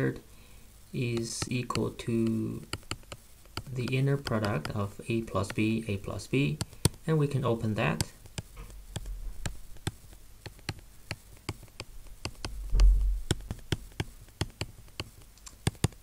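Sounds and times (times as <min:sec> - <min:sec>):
stylus tapping on tablet: 0:01.1 - 0:05.8, 0:06.4 - 0:07.1, 0:07.8 - 0:16.0
low thump: 0:12.5 - 0:13.4.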